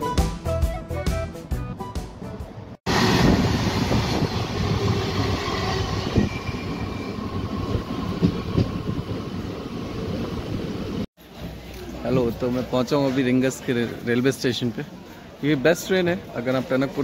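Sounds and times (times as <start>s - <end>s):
passing goods train: 2.2s - 14.1s
train wheels rumbling on rails: 2.9s - 11.1s
train wheel knocks: 8.2s - 8.9s.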